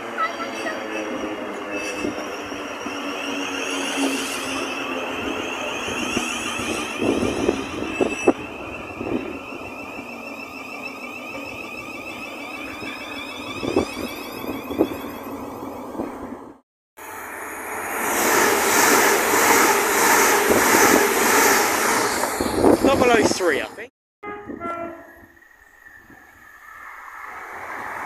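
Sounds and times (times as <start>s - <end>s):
electric train passing: 0.0s - 23.8s, 24.4s - 28.0s
traction motor whine: 5.6s - 15.0s.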